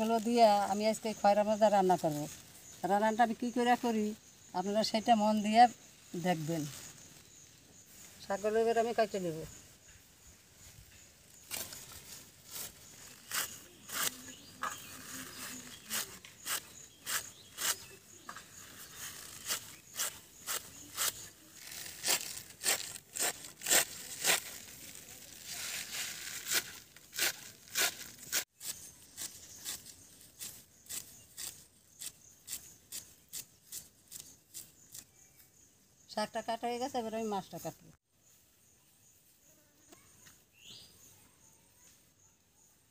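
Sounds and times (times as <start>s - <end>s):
blade chopping leaves: 11.4s - 35.0s.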